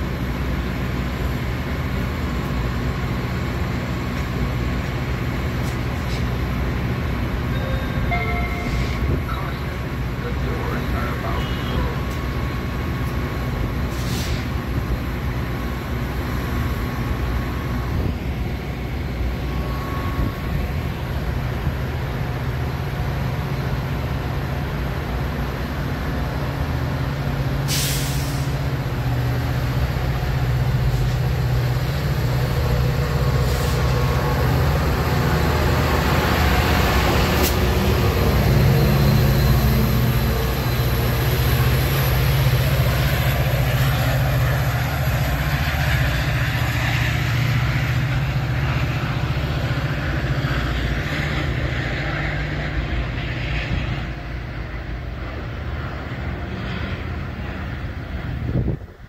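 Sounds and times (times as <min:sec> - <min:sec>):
diesel locomotive engine: 0:00.0 - 0:59.0
air hiss: 0:13.9 - 0:14.6, 0:27.6 - 0:28.7.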